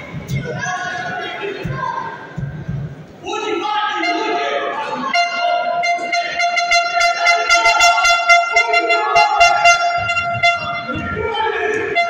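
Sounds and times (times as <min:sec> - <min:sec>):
shrill horn blowing: 0:04.0 - 0:12.0.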